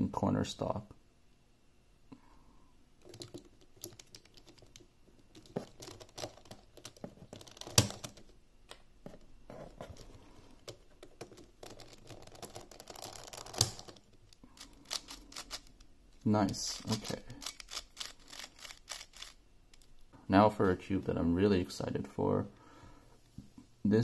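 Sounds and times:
plastic puzzle cube pieces clicking: 0:11.1 - 0:15.9, 0:16.7 - 0:19.9.

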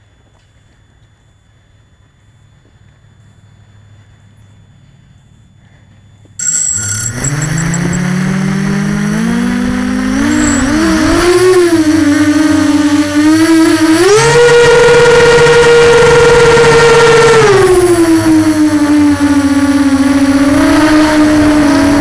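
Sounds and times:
drone motors whining: 0:06.4 - 0:22.0.

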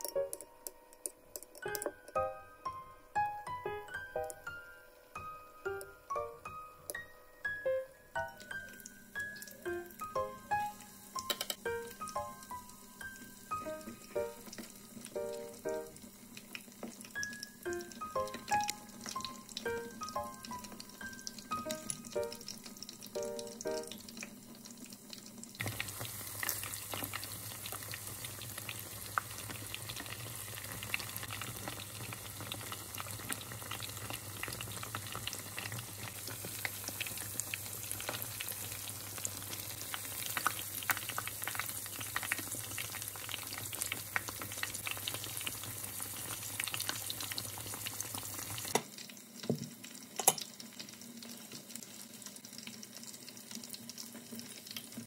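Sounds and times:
soft musical notes: 0:00.0 - 0:16.1, 0:17.2 - 0:24.0
deep-frying sizzle: 0:01.5 - 0:55.0.

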